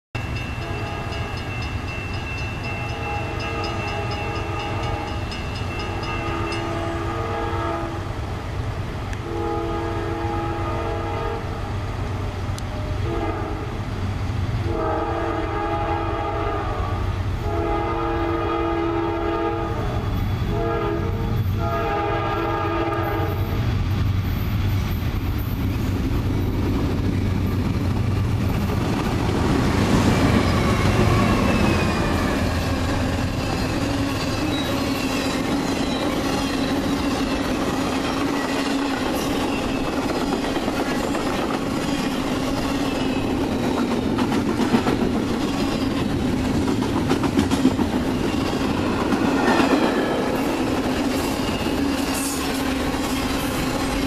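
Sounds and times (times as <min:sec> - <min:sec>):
low rumble of locomotive engine: 0:00.2 - 0:54.0
locomotive air horn blasts: 0:00.6 - 0:01.3, 0:02.8 - 0:05.2, 0:05.9 - 0:08.1, 0:09.2 - 0:11.7, 0:12.8 - 0:13.8, 0:14.7 - 0:23.5.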